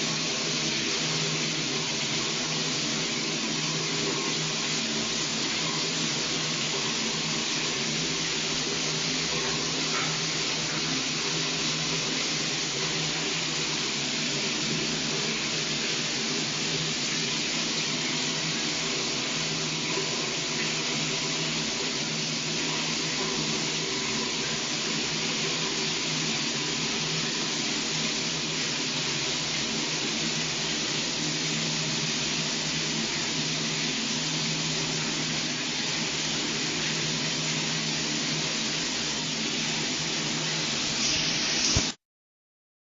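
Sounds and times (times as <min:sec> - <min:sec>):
shower water spraying: 0:34.7 - 0:42.0.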